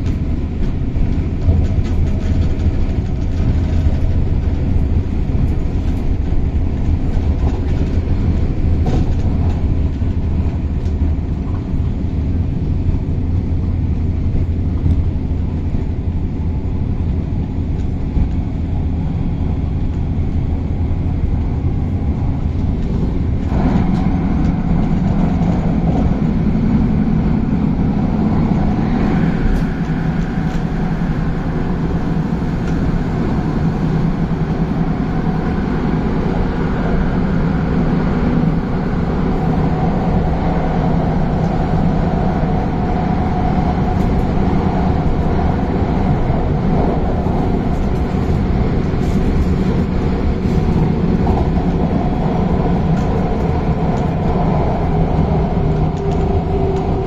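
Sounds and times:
electric train rumbling: 0.0s - 57.0s.

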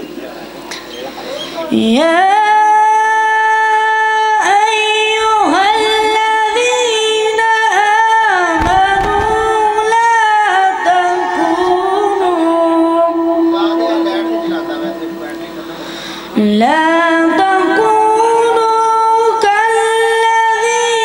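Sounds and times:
man chanting melodic recitation: 13.0s - 15.8s
short breaths: 15.7s - 16.4s.

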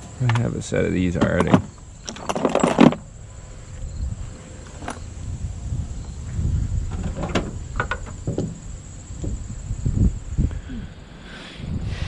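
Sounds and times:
handling noise: 0.0s - 5.3s, 5.9s - 9.7s.

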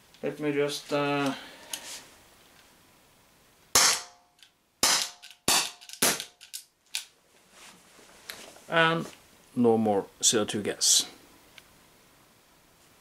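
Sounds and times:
air pistol firing pops: 3.8s - 4.2s, 4.8s - 6.4s.

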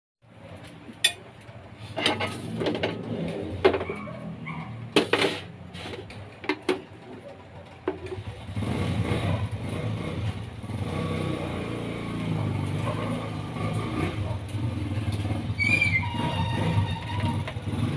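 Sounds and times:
plates and spoon clinking: 2.0s - 2.9s.

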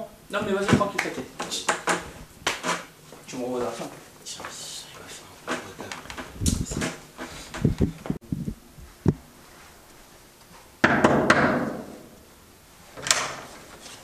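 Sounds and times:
loud door bang: 10.8s - 12.0s.

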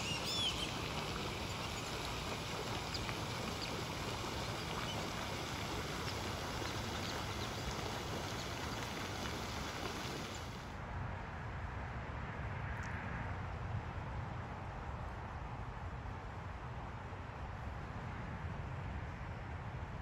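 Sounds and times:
fountain spray splashing on water: 0.0s - 10.7s.

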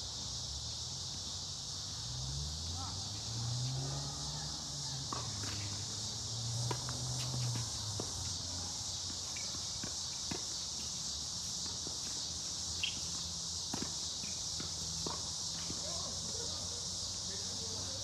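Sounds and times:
insects chorus: 0.0s - 18.0s
tennis ball strikes: 5.1s - 5.8s, 6.5s - 8.2s, 13.7s - 15.8s
footsteps on court: 6.6s - 16.1s.

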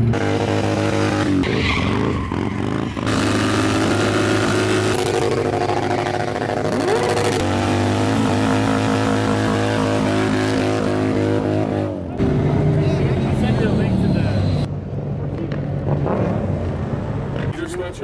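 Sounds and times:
motorcycle engines revving: 0.0s - 17.9s.

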